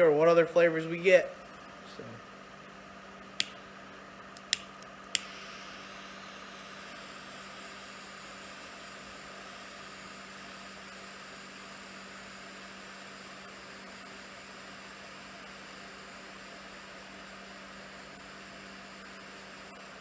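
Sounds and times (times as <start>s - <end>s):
steady background hum: 0.0s - 14.1s
lighter clicking: 3.4s - 3.6s, 4.3s - 5.4s
lighter flame hissing: 4.3s - 11.8s.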